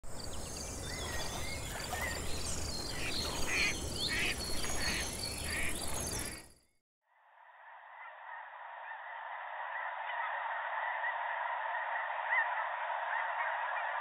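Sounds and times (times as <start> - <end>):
birds chirping and calling: 0.1 - 6.4
noisy repeating calls: 2.9 - 5.8.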